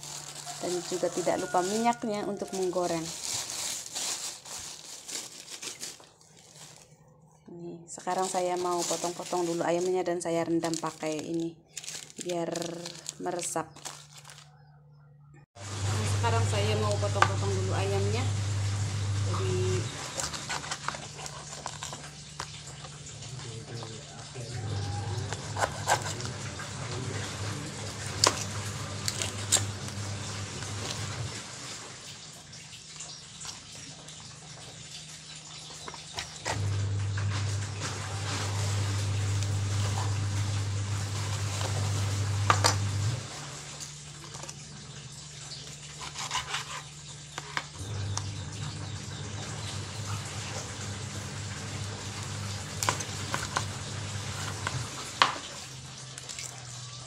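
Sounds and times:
low steady hum: 0.0s - 32.3s, 36.5s - 45.8s, 47.8s - 56.5s
knife slicing raw chicken: 24.8s - 26.4s, 46.0s - 47.6s.

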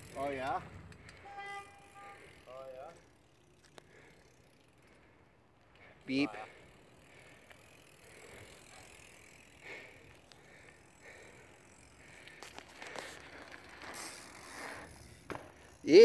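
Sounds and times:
bike tyre noise on asphalt: 0.0s - 16.0s
bike clicks and knocks: 0.6s - 1.8s, 12.2s - 16.0s.

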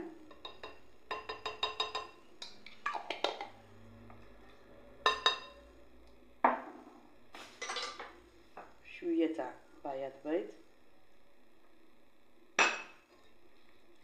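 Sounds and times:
spoon clinking against glass bowl: 0.3s - 3.4s.

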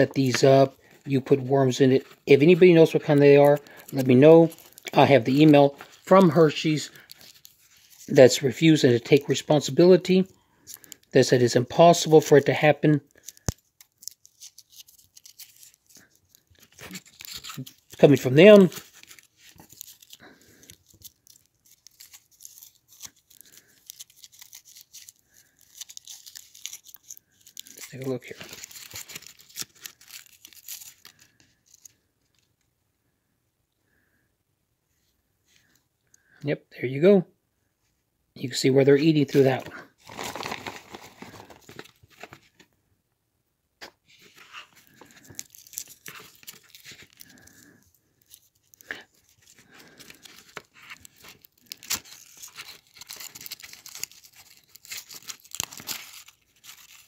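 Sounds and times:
foil wrapper crinkling: 0.0s - 32.5s, 39.3s - 42.7s, 44.2s - 57.0s
plastic bag rustling: 39.3s - 42.6s.

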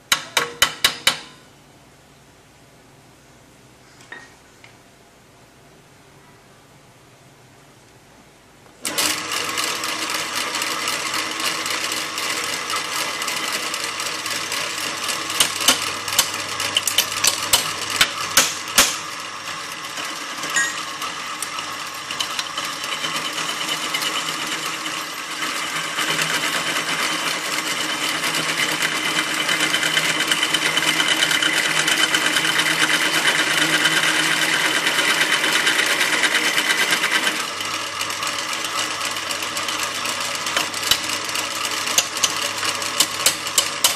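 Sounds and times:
drill press drilling metal: 8.8s - 43.9s.

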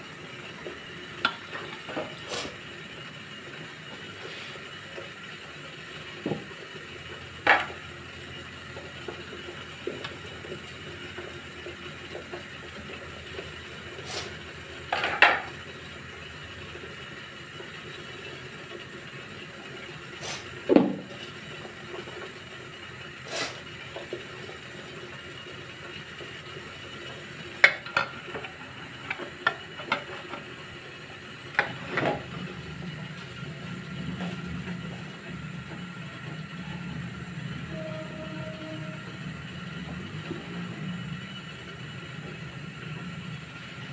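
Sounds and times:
pots lids and plates clinking: 14.9s - 15.6s.

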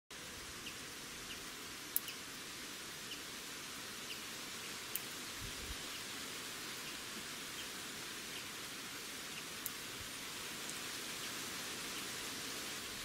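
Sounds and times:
outdoor hiss: 0.1s - 13.0s
faint bird ticks: 0.6s - 2.3s, 4.0s - 5.2s, 9.3s - 9.9s.

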